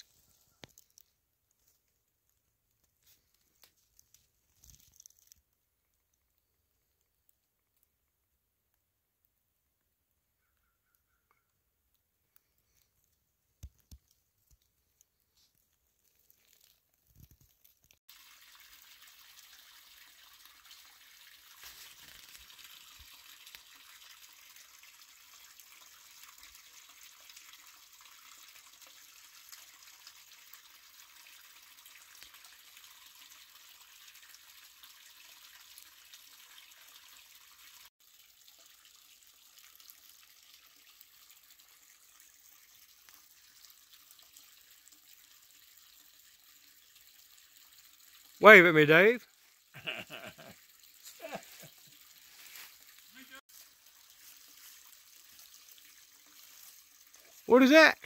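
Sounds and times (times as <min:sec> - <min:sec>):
water cascading into a pool: 0:18.0 - 0:58.0.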